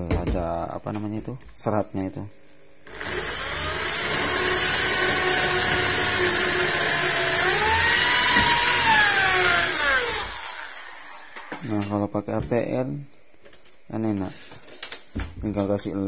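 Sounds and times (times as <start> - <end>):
electric drill whining: 2.8 - 11.6.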